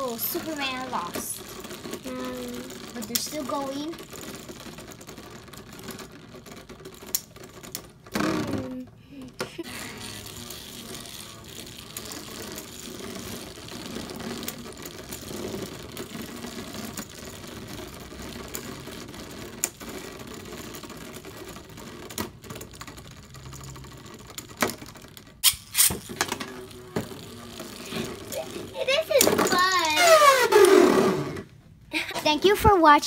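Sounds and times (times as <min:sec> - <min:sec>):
spinning tops whirring and rattling: 0:00.0 - 0:31.5.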